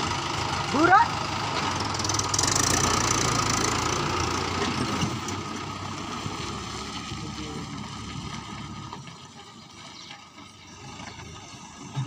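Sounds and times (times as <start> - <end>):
tractor diesel engine passing: 0.0 - 12.0.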